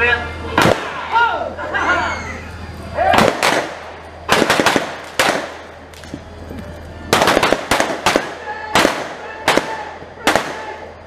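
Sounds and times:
gunshots with echo: 0:03.1 - 0:05.7, 0:07.1 - 0:10.8.

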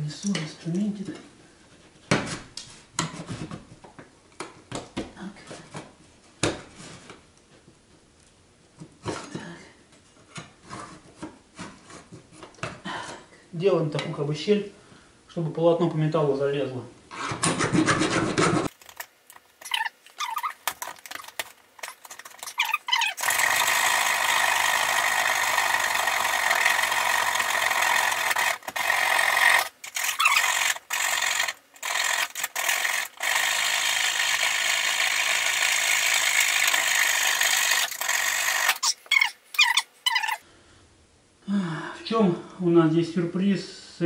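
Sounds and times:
saw cutting through nails: 0:19.6 - 0:40.4.

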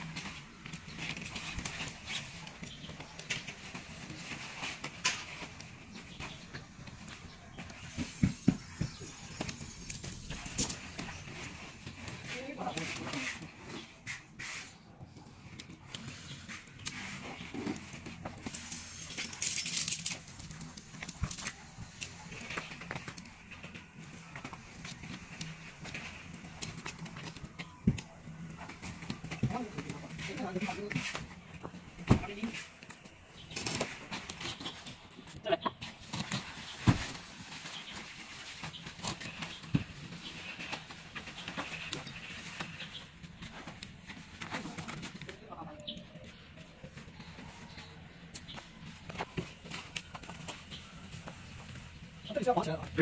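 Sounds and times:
tent canvas rustling: 0:00.0 - 0:45.6.

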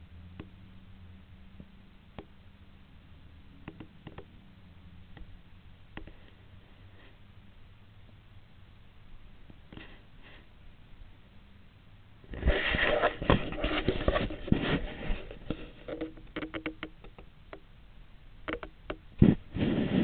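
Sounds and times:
sharp clicks and knocks: 0:00.4 - 0:00.6, 0:03.6 - 0:04.4, 0:12.3 - 0:17.7, 0:18.4 - 0:19.4
device handling rustling and scraping: 0:12.3 - 0:16.9.

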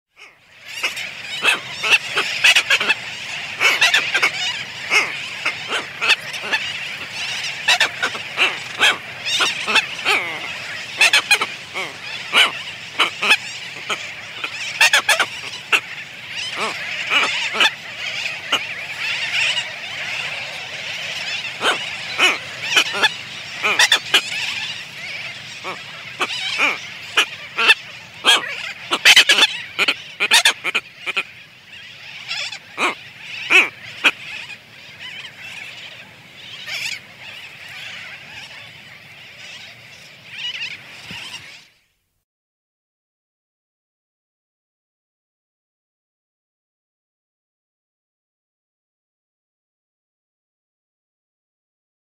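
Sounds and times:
tropicbirds calling: 0:00.1 - 0:41.9
tern colony calling: 0:00.2 - 0:41.6.

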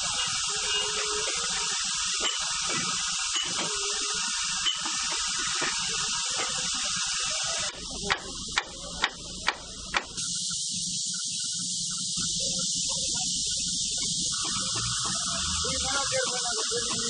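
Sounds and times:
sharp steam beats: 0:00.0 - 0:17.0
steam hissing: 0:00.0 - 0:17.0.

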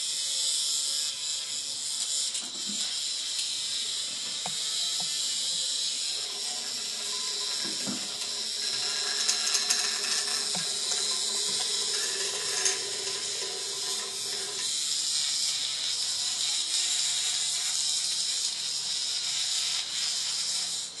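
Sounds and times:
toy vibration motor buzzing: 0:00.0 - 0:21.0.

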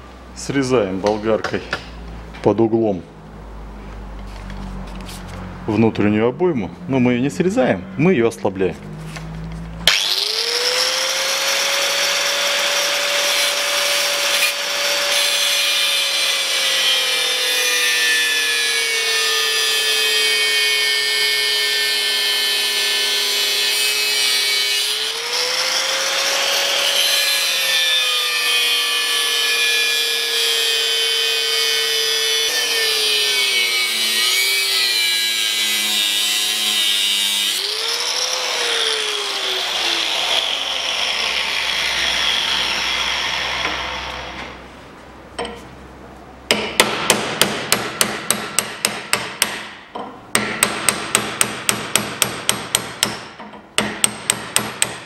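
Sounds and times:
angle grinder cutting steel: 0:09.8 - 0:44.6.

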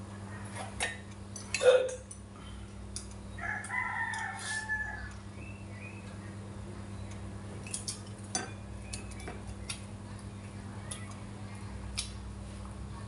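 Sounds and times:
utensils clinking on ceramic bowls: 0:07.6 - 0:09.4.

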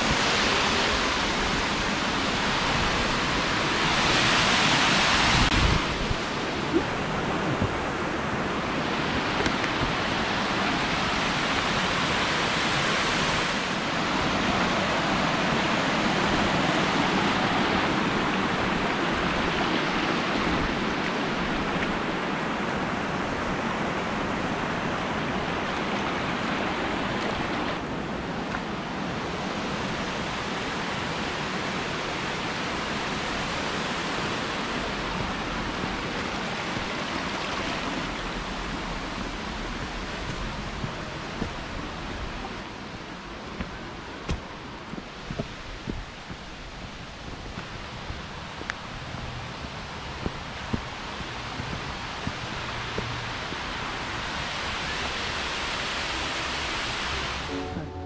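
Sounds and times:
river rushing over rocks: 0:00.0 - 0:58.0.

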